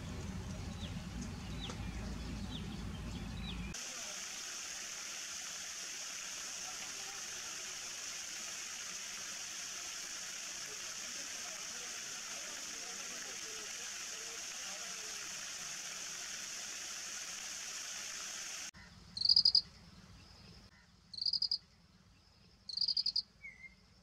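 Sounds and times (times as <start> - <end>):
low rumble: 0.0 - 3.7
high-pitched hiss: 3.7 - 19.6.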